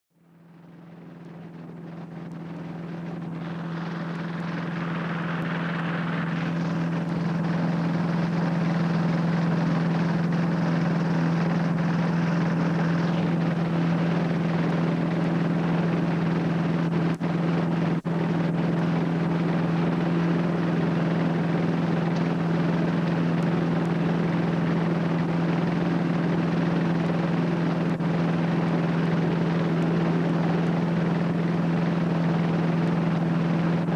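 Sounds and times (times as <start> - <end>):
propeller engine droning: 0.2 - 33.9.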